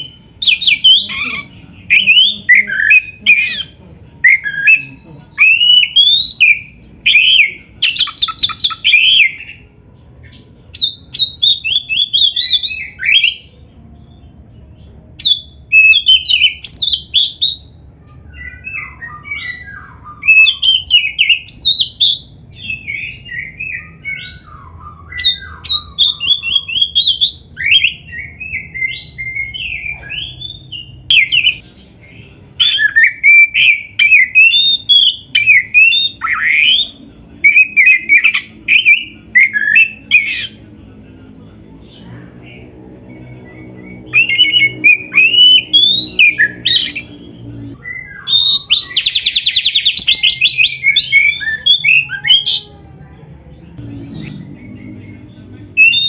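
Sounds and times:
bird singing whistles and chirps: 0.0 - 13.5, 15.2 - 31.6, 43.2 - 47.2, 47.8 - 52.6, 54.1 - 56.0.

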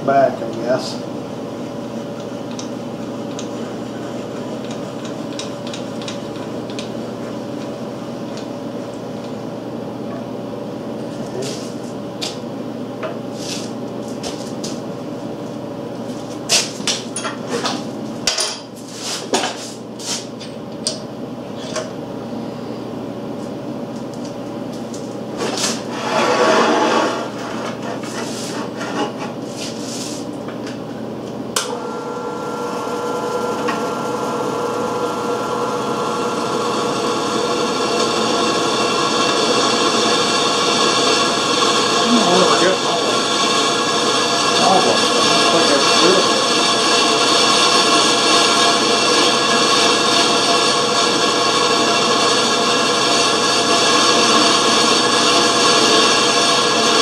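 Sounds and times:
electric motor humming: 31.6 - 57.0.

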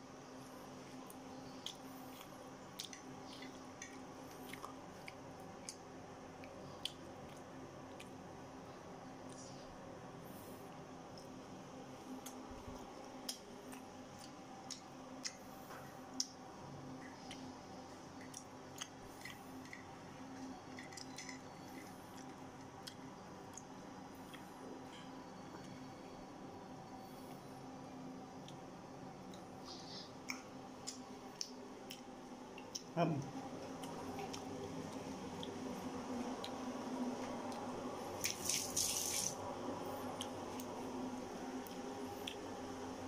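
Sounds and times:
steady low hum: 0.0 - 43.0
person chewing food: 0.7 - 10.4, 12.1 - 25.9, 28.3 - 39.3, 40.0 - 43.0.

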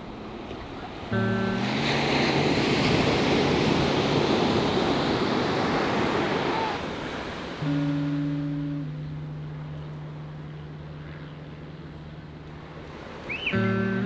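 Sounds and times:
surf breaking on beach: 0.5 - 9.4.

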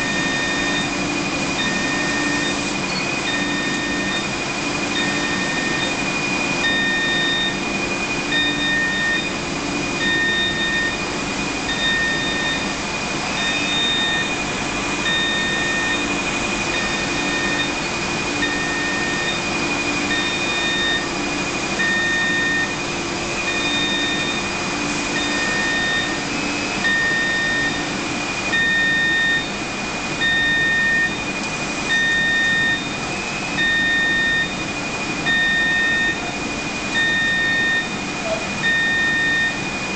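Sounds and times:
machinery hiss and hum: 0.0 - 39.9
high electronic beep: 15.0 - 16.1, 31.9 - 33.0, 33.6 - 34.6, 35.3 - 36.3, 37.0 - 39.6.

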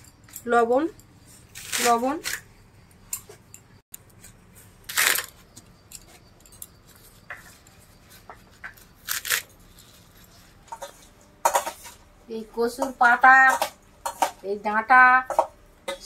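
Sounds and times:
metal utensils and dishes clattering: 9.5 - 14.6, 15.2 - 16.0.

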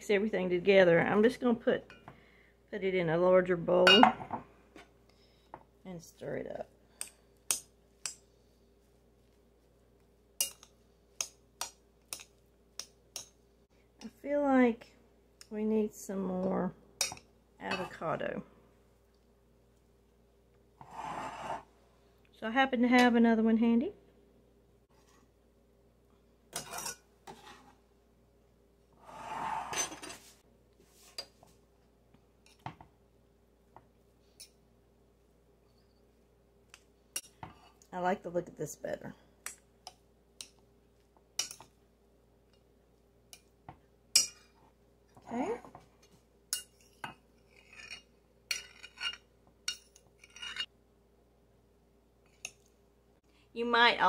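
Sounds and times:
utensil scraping bowl: 20.8 - 21.7.

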